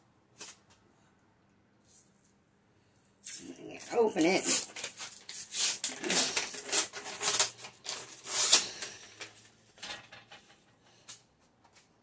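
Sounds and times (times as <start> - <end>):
paper packaging rustling: 3.3 - 11.2.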